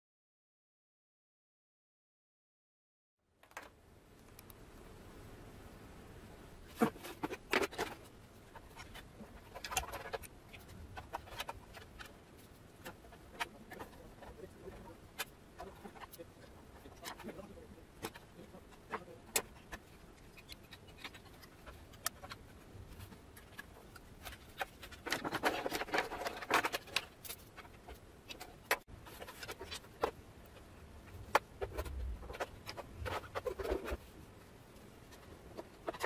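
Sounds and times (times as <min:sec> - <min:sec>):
rustling and rattling: 0:06.7 - 0:36.0
plastic and metal parts clicking: 0:06.8 - 0:34.0.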